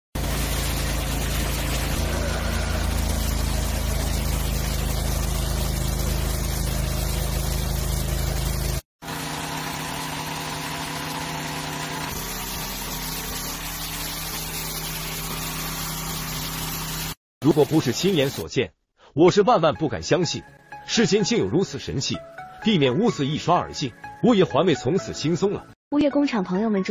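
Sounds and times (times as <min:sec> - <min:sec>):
water spray hissing: 0:00.2 - 0:08.8, 0:10.5 - 0:18.4
pressure washer pump humming: 0:00.2 - 0:18.4.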